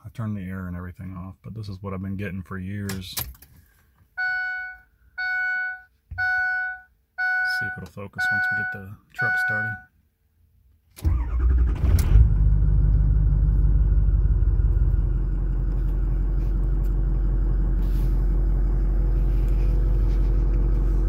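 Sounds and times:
diesel engine starter cranking: 11.0s - 18.7s
diesel engine idling: 11.1s - 21.0s.

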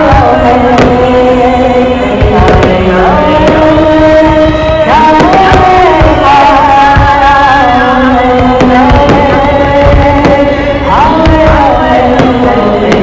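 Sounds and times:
chanting voice: 0.0s - 13.0s
steady drone: 0.0s - 13.0s
deep thumps: 2.1s - 7.4s, 8.3s - 13.0s.

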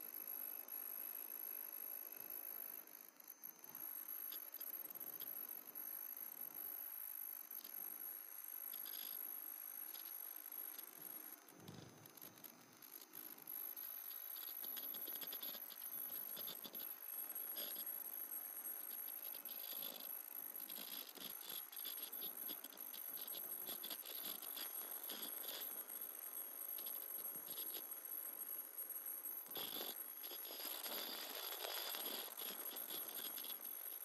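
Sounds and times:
welding machine clicking and rattling: 29.5s - 33.9s.

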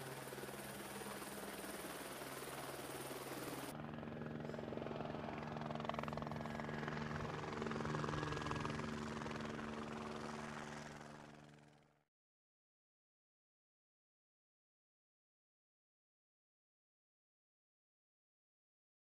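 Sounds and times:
aircraft engine drone: 0.0s - 11.1s.

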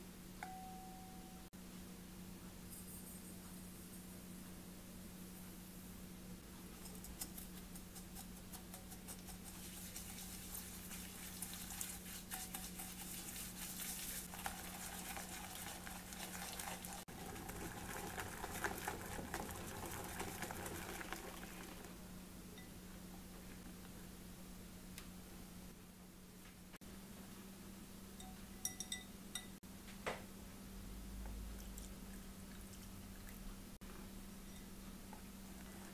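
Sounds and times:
steady low hum: 0.0s - 35.9s
whisk beating in glass bowl: 6.8s - 21.9s.

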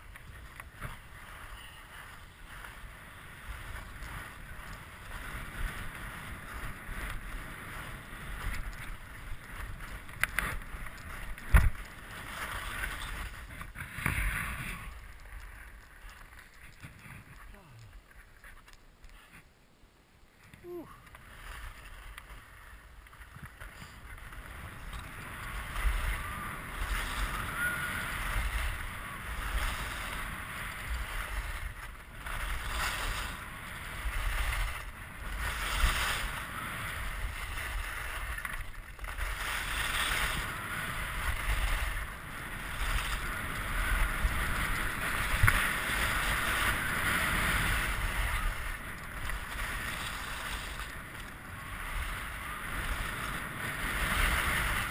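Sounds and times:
skis scraping over snow: 0.0s - 19.5s, 20.3s - 54.9s
wind on microphone: 20.6s - 54.9s.

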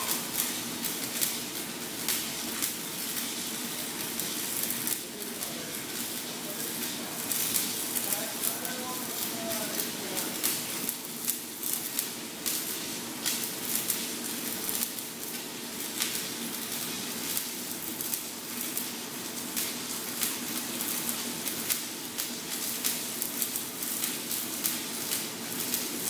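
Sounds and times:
welding arc crackling and sizzling: 0.0s - 26.0s.

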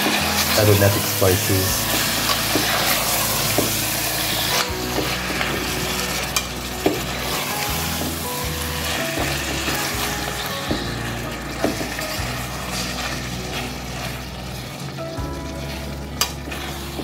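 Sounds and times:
meat sizzling in a pot: 0.0s - 17.0s.

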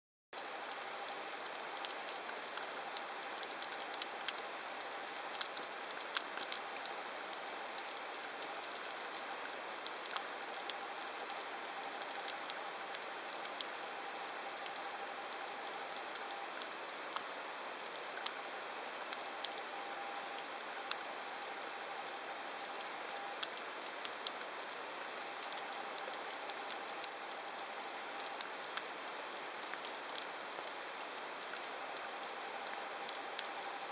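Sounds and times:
underwater crackle of tiny clicks: 5.1s - 7.0s.

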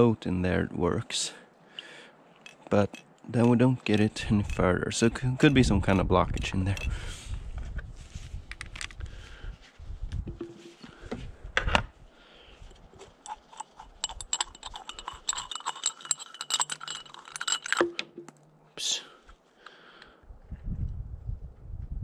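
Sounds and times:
hand tool clicking on metal: 2.4s - 6.9s, 13.0s - 18.1s.

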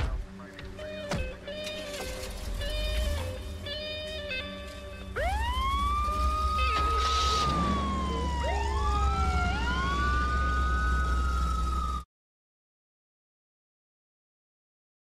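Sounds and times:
police sirens wailing: 0.7s - 12.0s.

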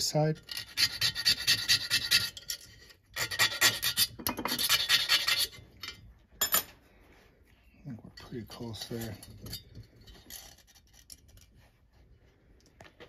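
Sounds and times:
hand file rasping metal ring: 0.0s - 6.0s.

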